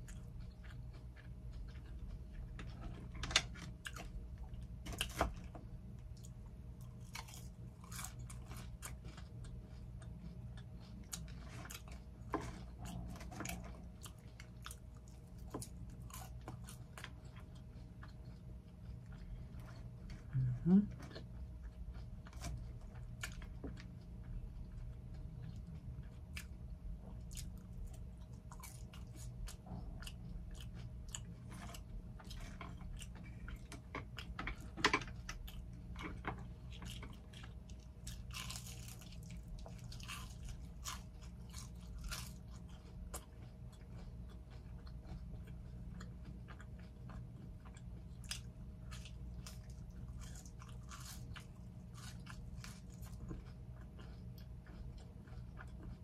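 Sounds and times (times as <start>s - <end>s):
close-miked chewing: 0.0s - 56.0s
crisp food crunches: 35.2s - 45.2s, 46.2s - 56.0s.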